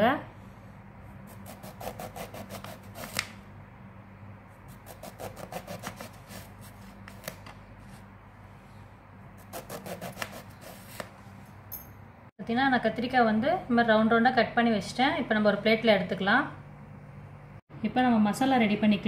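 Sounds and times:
steady low hum: 0.0 - 19.0
knife sawing through eggplant: 1.2 - 3.3, 4.6 - 7.4, 9.4 - 11.2.

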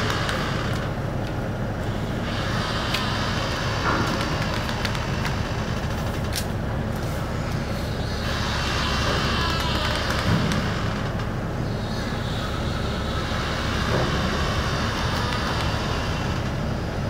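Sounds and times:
ship engine rumble: 0.0 - 17.0.

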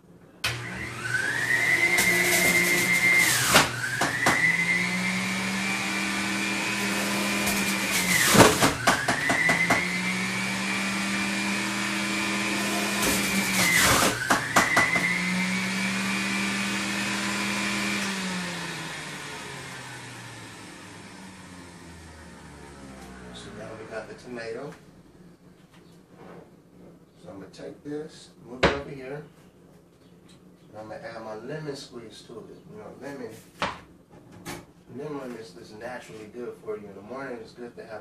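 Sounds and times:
electric juicer motor whining: 0.4 - 24.0
juicer clicks and knocks: 7.5 - 9.9, 13.1 - 15.1.

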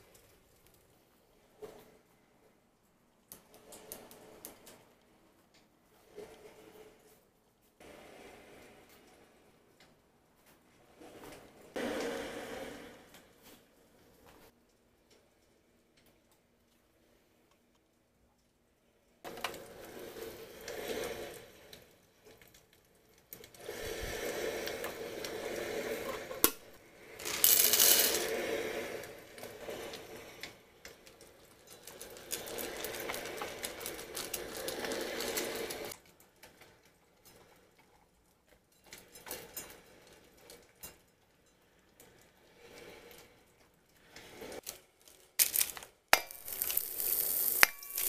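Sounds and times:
kibble rattling in metal bowl: 27.2 - 28.3.

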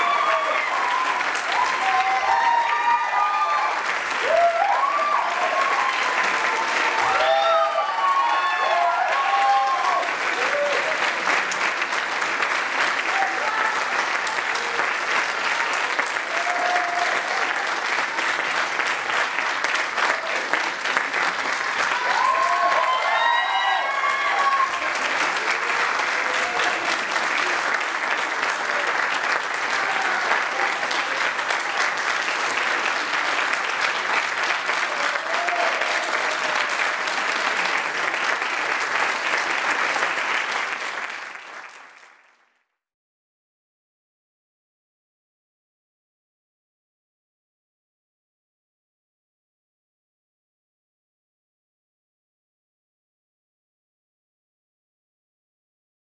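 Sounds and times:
audience cheering: 0.0 - 12.3, 12.9 - 41.8
audience applauding: 0.0 - 42.7.

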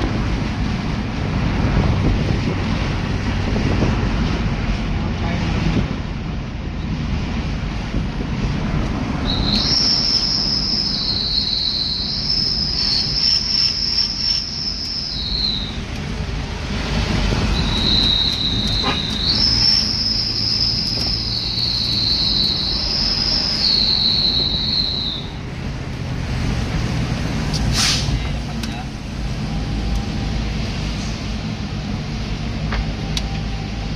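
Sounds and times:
vehicle cabin road rumble: 0.0 - 33.9
high-pitched two-tone whistling: 9.2 - 15.8, 17.4 - 25.4.

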